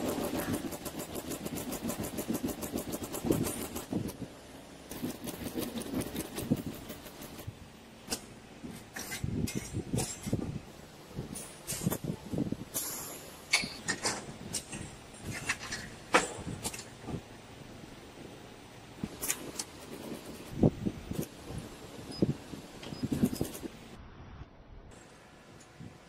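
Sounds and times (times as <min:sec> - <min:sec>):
machine clicking rapidly: 0:00.0 - 0:04.2, 0:04.9 - 0:07.5.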